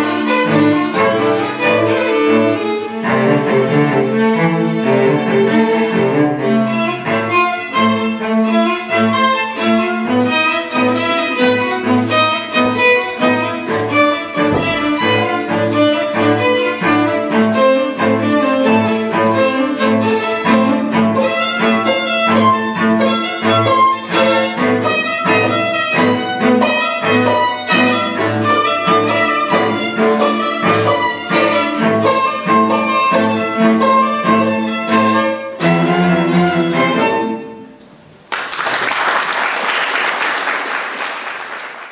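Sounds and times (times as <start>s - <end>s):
string quartet playing: 0.0s - 38.3s
audience applauding: 38.3s - 41.9s.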